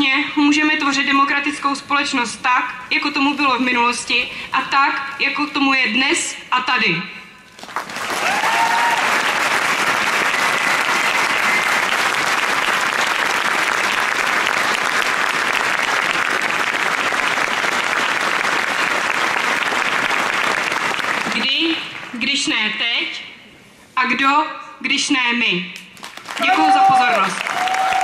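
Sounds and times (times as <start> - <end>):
large crowd applauding: 7.6 - 22.2, 26.0 - 28.0.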